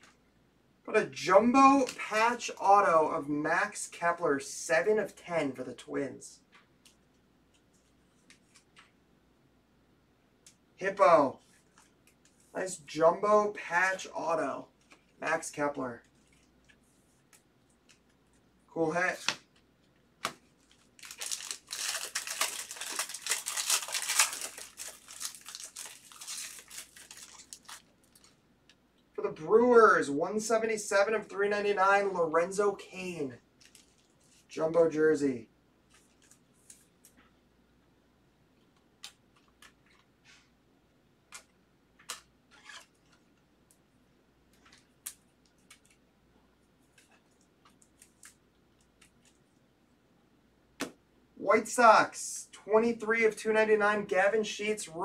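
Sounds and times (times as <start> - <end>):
soft plastic rustles: 6.4 - 9.0, 11.3 - 12.6, 14.7 - 15.2, 15.9 - 28.8, 33.5 - 34.6, 35.8 - 37.4, 38.6 - 40.6, 41.3 - 49.7
foil wrapper crinkling and tearing: 20.6 - 28.4.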